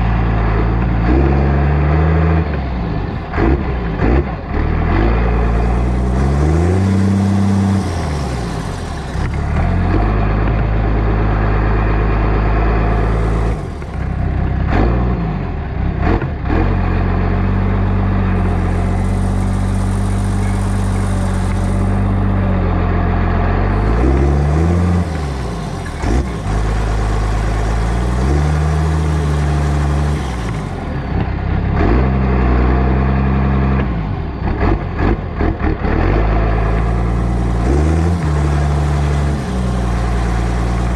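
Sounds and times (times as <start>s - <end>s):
tractor diesel engine revving: 0.0s - 40.9s.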